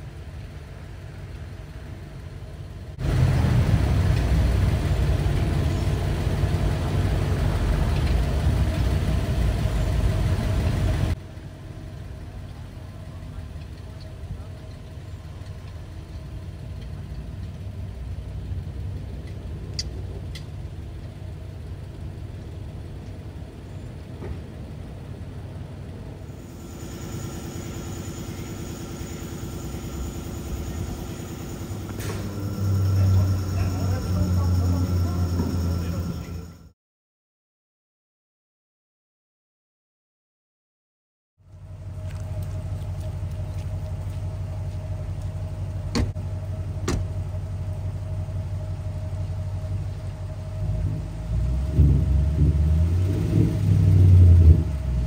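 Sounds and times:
car engine idling rumble: 0:00.0 - 0:36.7, 0:41.4 - 0:55.0
mechanical drone with hiss: 0:26.3 - 0:36.7
car door shutting: 0:31.9 - 0:32.4, 0:45.9 - 0:46.2, 0:46.8 - 0:47.1.

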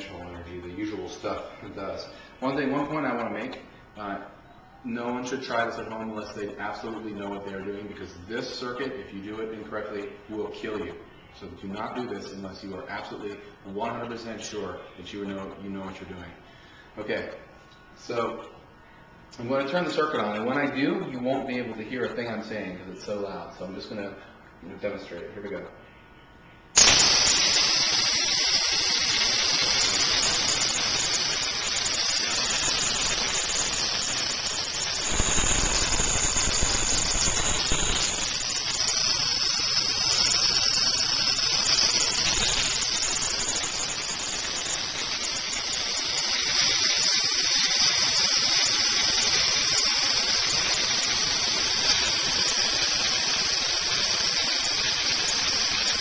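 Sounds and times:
spark gap crackling: 0:26.8 - 0:56.0.

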